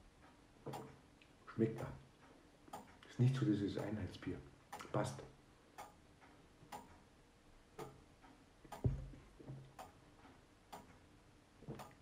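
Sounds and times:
clock ticking: 0.0s - 12.0s.

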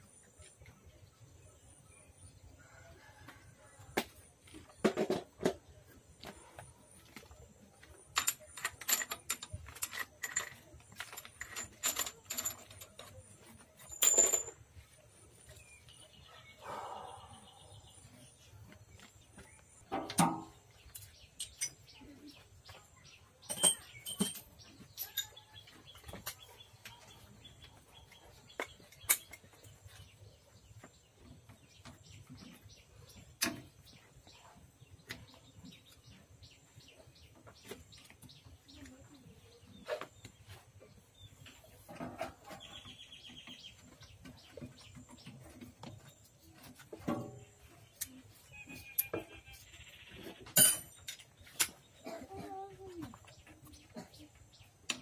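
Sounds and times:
metal tools clinking: 7.8s - 14.9s, 20.0s - 22.0s, 23.4s - 27.2s, 50.4s - 51.9s.

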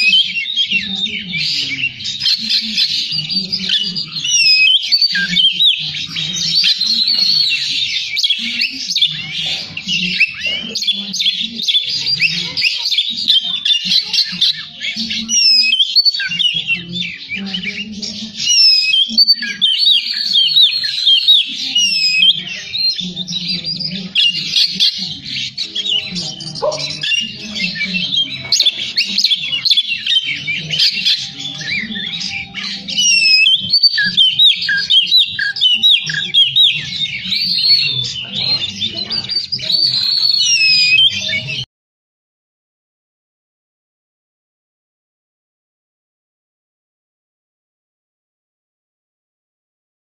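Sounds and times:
bird singing varied whistles: 29.0s - 37.6s.

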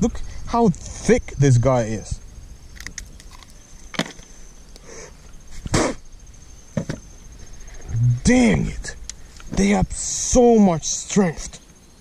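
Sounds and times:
faint high whine: 0.0s - 12.0s.

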